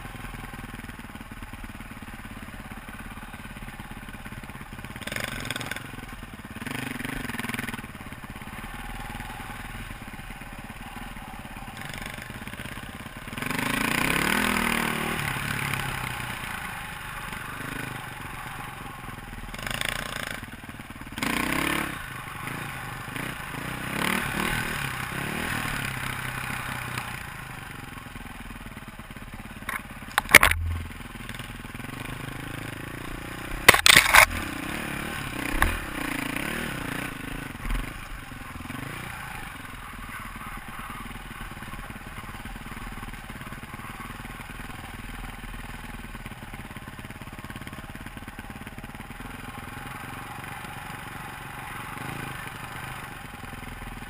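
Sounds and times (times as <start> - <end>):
dirt bike engine revving: 4.9 - 28.0, 29.7 - 44.6, 49.6 - 53.3.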